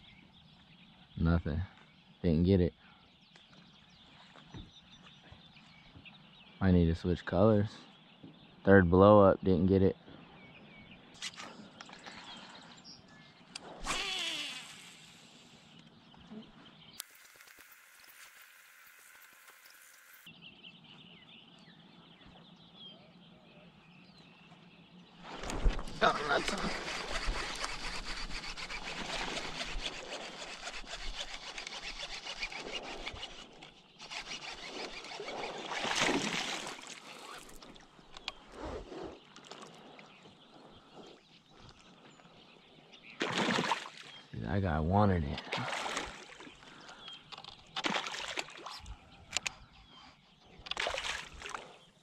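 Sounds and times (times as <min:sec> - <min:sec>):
sharp reel clicks: 0:13.6 - 0:15.4, 0:26.5 - 0:35.4
fishing reel spool whine: 0:13.8 - 0:15.8, 0:17.0 - 0:20.3, 0:26.3 - 0:36.1.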